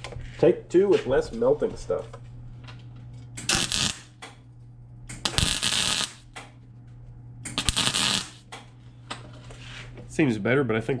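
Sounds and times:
welder arcing and crackling: 3.4 - 4.3, 5.1 - 6.4, 7.4 - 8.6.

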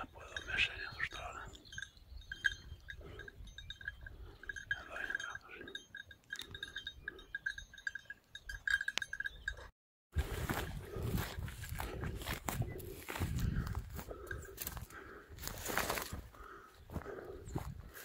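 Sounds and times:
small bells jingling: 0.0 - 9.7.

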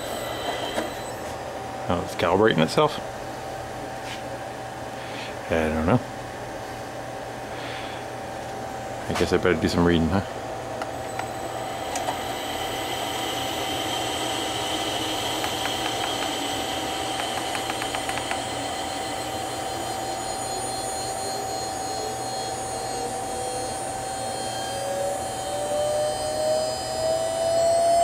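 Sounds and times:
electric motor whine: 0.0 - 1.4, 10.8 - 28.0
tone rising in pitch: 10.9 - 28.0
keypad clicks: 17.2 - 18.4.

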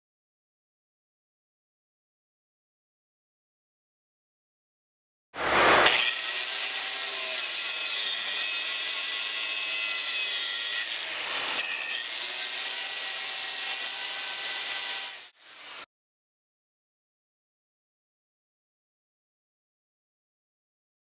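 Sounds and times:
angle grinder grinding metal: 5.4 - 15.9.

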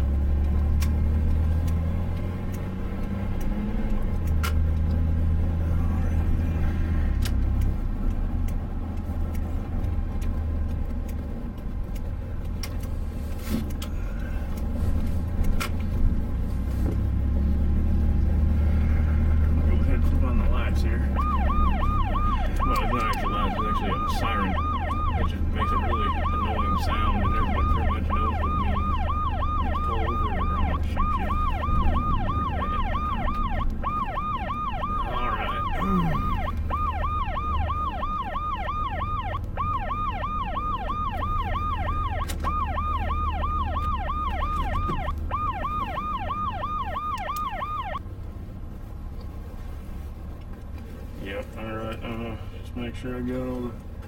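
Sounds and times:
truck engine rumble from inside cab: 0.0 - 54.0
electronic siren yelping: 21.0 - 48.0.

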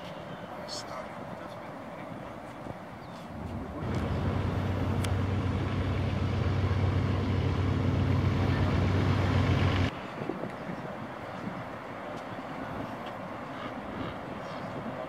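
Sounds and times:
low engine drone: 3.7 - 9.9.

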